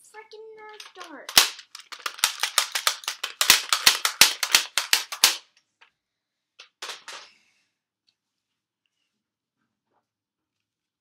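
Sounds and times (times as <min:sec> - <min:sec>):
toy blaster plastic snaps and clacks: 0:00.7 - 0:05.6, 0:06.6 - 0:07.2.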